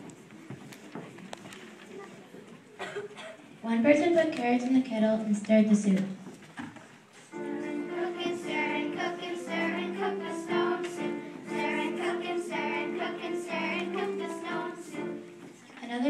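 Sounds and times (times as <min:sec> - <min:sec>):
children singing: 0:07.3 - 0:15.6.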